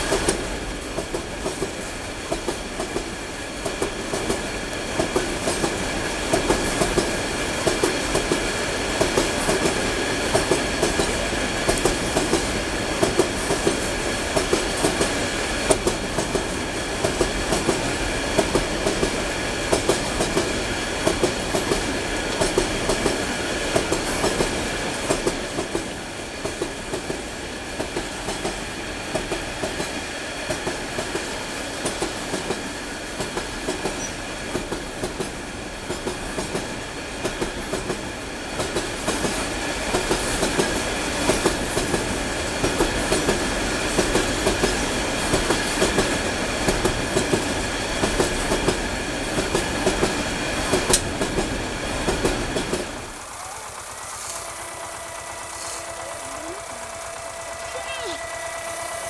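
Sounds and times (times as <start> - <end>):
train rumble: 0.0 - 59.0
train wheels clickety-clack: 0.0 - 59.0
faint high-pitched ring: 57.0 - 59.0.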